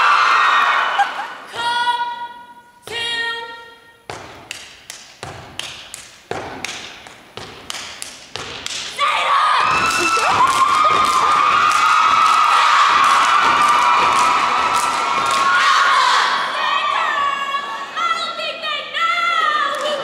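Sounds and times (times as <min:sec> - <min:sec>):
audience cheering and whooping: 0:00.0 - 0:01.5, 0:09.4 - 0:18.0
stomping and clapping: 0:04.1 - 0:09.0, 0:09.7 - 0:16.2.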